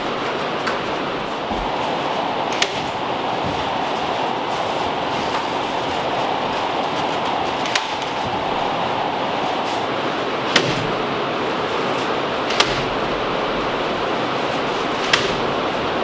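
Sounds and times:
steady rushing hum: 0.0 - 16.0
nail gun firing: 7.6 - 8.2, 10.5 - 11.0, 12.5 - 13.0, 15.0 - 15.5.

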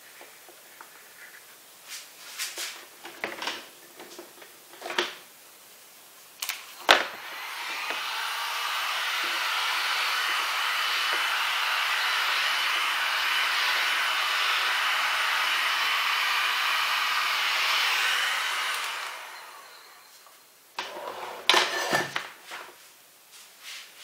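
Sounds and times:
hot-air blower hissing: 6.4 - 22.3.

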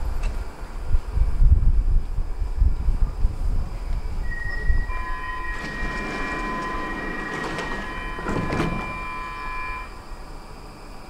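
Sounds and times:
train high electrical tone: 3.6 - 11.0.

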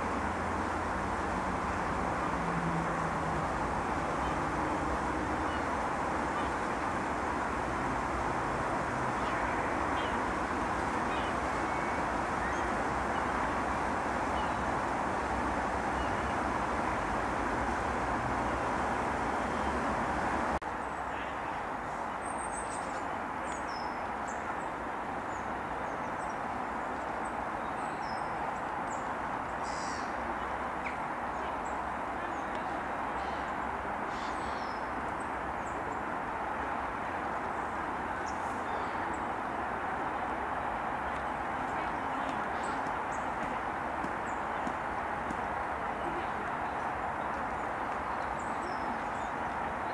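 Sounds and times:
outdoor background noise: 0.0 - 49.9
faint high bird calls: 11.1 - 13.3, 29.6 - 30.2, 31.6 - 34.9.

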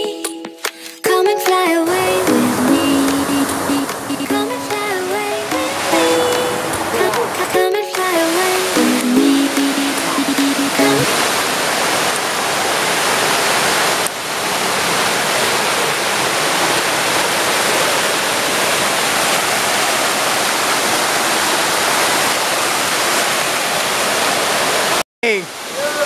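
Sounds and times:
waterfall rushing over rocks: 1.9 - 26.0.

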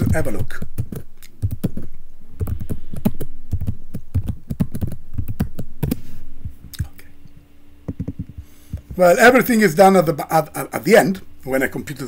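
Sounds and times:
typing on computer keyboard: 0.8 - 5.7.

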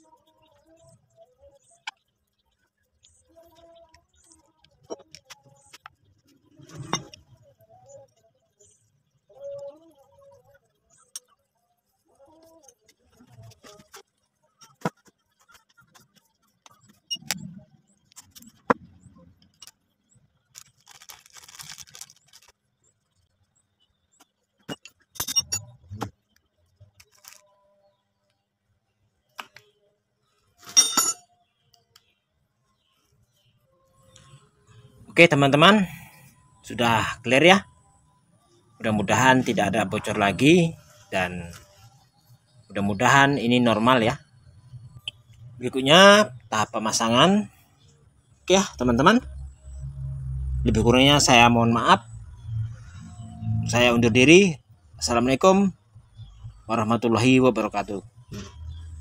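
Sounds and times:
metal tools clinking: 24.8 - 25.6, 30.6 - 31.2
ringing metal clatter: 30.7 - 31.2.

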